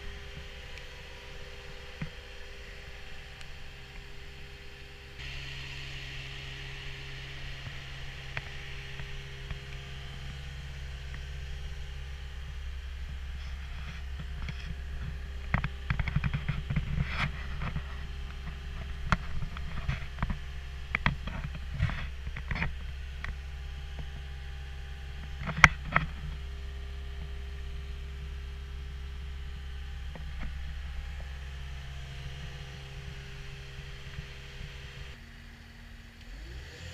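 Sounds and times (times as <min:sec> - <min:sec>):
diesel engine idling: 0:00.0 - 0:36.5
knocks and rattles of climbing: 0:06.8 - 0:27.4.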